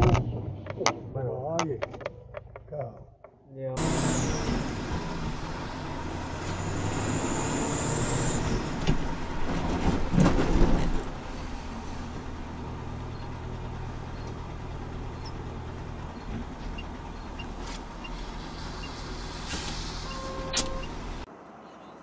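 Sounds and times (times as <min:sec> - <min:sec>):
engine low drone from inside cab: 0:10.6 - 0:21.3.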